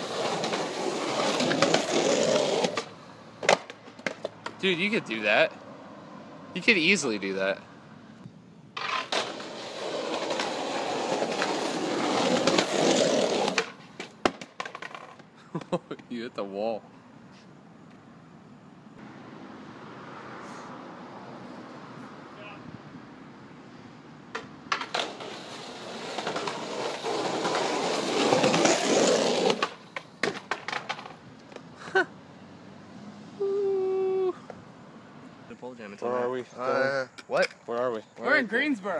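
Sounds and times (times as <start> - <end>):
skateboard wheels rolling on stone: 0.0 - 4.6, 8.7 - 16.1, 24.3 - 31.7
skateboard wheels rolling on concrete: 0.0 - 38.9.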